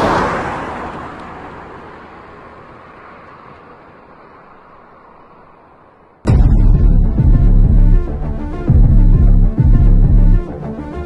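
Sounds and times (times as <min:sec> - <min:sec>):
rc car motor and tyres: 0:00.0 - 0:06.2.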